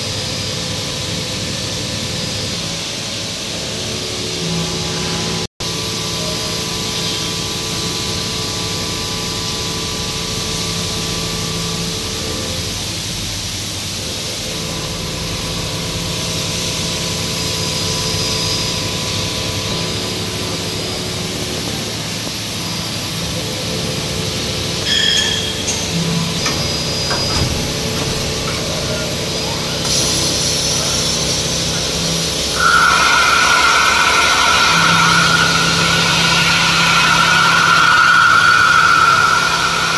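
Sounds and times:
milling machine running: 0.1 - 39.9
sharp high sounds: 24.8 - 39.9.

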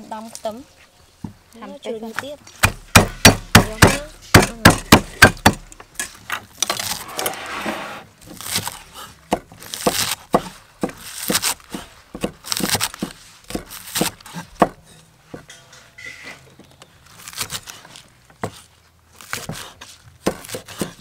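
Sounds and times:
crunching of onion stalks: 8.2 - 14.6, 16.6 - 21.0.

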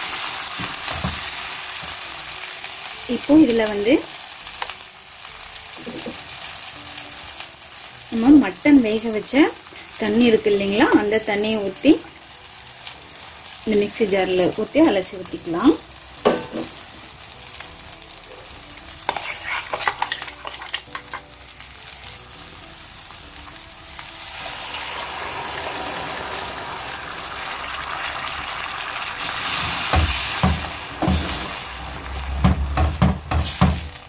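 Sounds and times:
masala sizzling in a pan: 0.0 - 34.0
stock being poured: 24.2 - 29.9.

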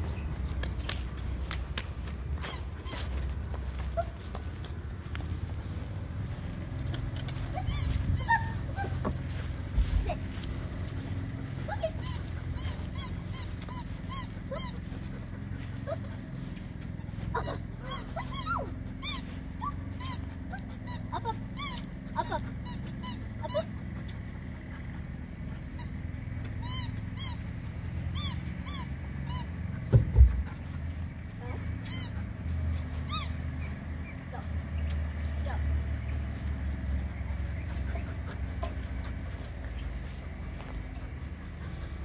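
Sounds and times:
steady low hum: 0.0 - 42.0
dog whining in high-pitched yelps: 7.5 - 9.1, 11.7 - 14.9, 17.3 - 23.8
heavy thump: 29.9 - 30.5.

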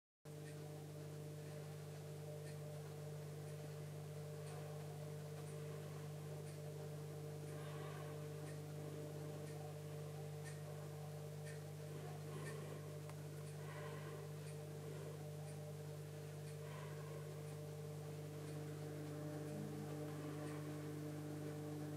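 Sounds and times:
aquarium equipment hum: 0.3 - 21.9
faint light ticks: 0.4 - 3.8, 10.4 - 10.6.

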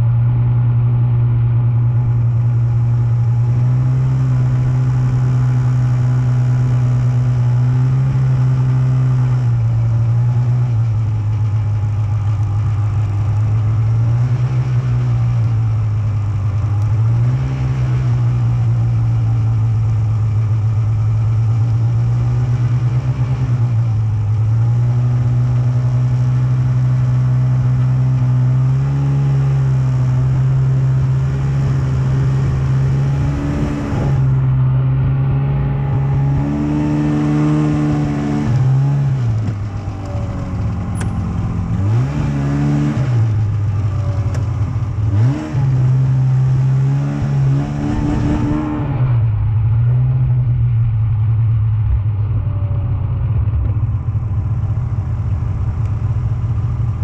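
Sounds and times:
snowmobile engine running: 0.0 - 57.0.

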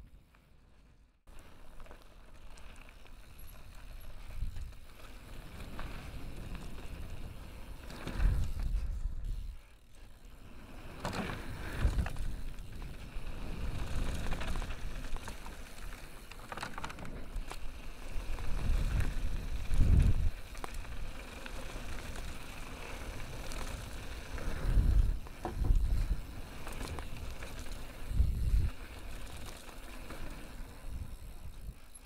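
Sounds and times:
bike tyres rattling over gravel: 0.2 - 32.0
wind rush on microphone: 18.1 - 21.1, 23.6 - 28.9.

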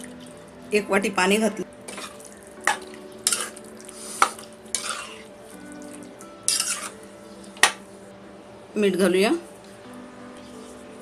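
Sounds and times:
faint background music: 0.0 - 11.0
spoon stirring in metal pan: 1.9 - 5.6, 6.5 - 7.0
spoon clinking against pan: 6.5 - 6.9.

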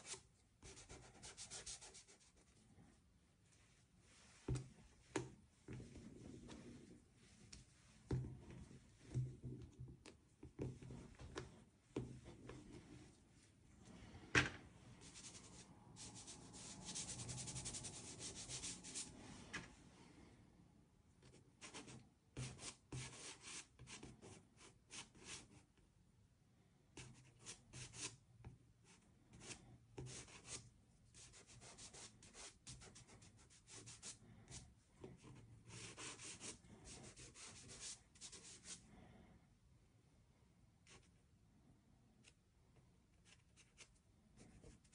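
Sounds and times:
pastel sticks rubbing on paper: 15.0 - 19.2, 35.2 - 38.8.

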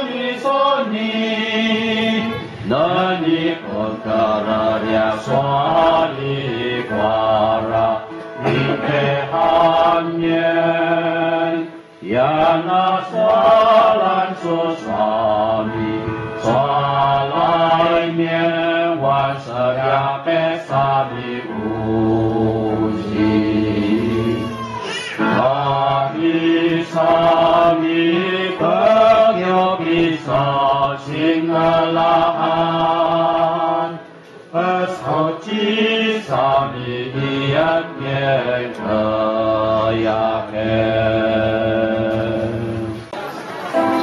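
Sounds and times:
congregation singing a chant: 0.0 - 44.0.

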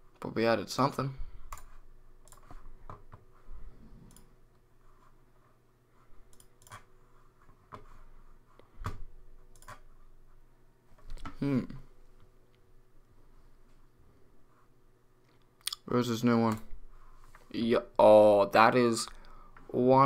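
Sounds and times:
computer mouse clicking: 1.5 - 3.2, 4.0 - 4.3, 6.3 - 6.9, 8.8 - 9.9.

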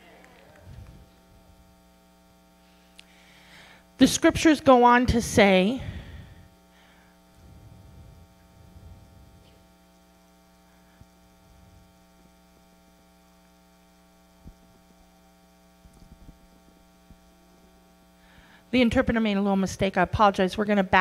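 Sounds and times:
faint mains hum: 0.0 - 21.0.

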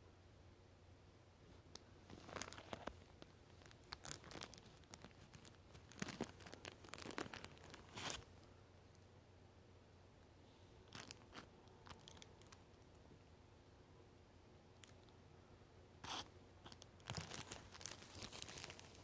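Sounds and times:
packet crinkling and rustling: 2.1 - 8.3, 10.9 - 13.0, 16.0 - 19.0.

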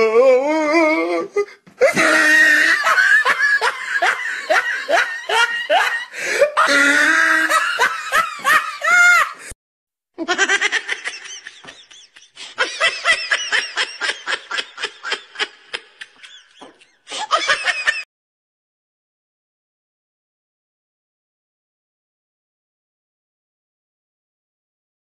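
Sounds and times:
person laughing hard: 1.8 - 9.6, 10.2 - 18.1.

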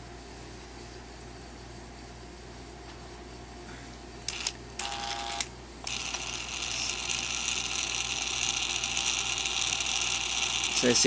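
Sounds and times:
treadmill incline motor whine: 4.3 - 11.0.

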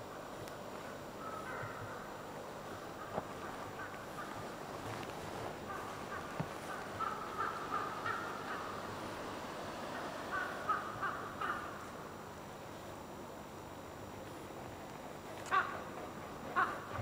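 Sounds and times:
crow cawing: 1.2 - 2.1, 3.0 - 9.0, 9.9 - 11.9, 15.4 - 15.9, 16.5 - 17.0.

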